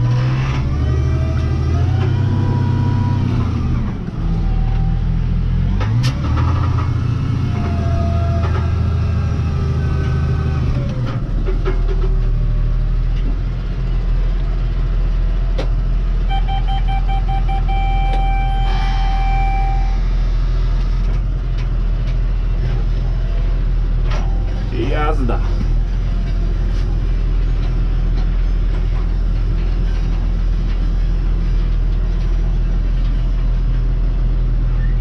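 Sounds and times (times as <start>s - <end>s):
electronic warning beep: 16.3s - 20.0s.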